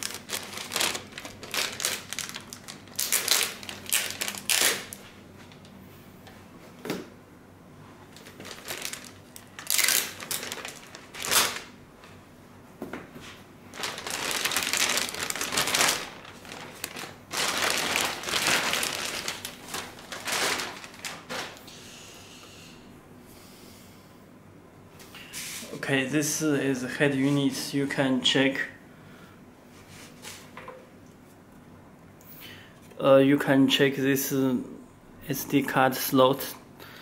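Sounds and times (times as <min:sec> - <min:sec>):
plastic bag crinkling: 0:00.0 - 0:05.7, 0:08.1 - 0:11.8, 0:13.7 - 0:21.6.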